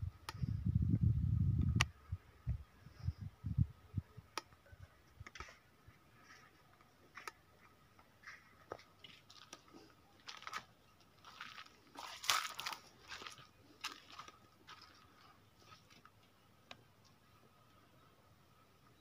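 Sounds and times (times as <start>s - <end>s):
light clicks and scrapes: 5.1s - 10.7s
footsteps on rock: 6.2s - 16.2s.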